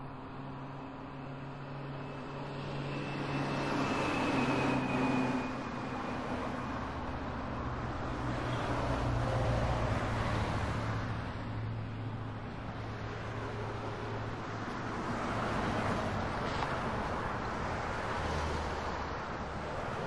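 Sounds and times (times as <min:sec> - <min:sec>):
faint high whine: 0:00.0 - 0:07.3
vehicles passing by: 0:00.0 - 0:20.0.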